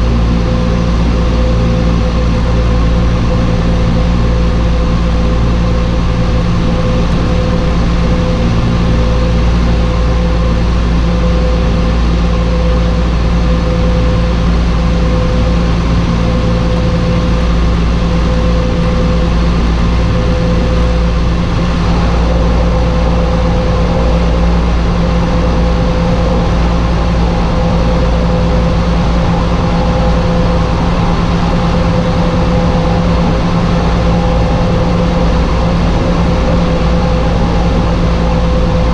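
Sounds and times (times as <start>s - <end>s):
higher engine tone: 0.0s - 38.9s
turboprop engines droning: 0.0s - 38.9s.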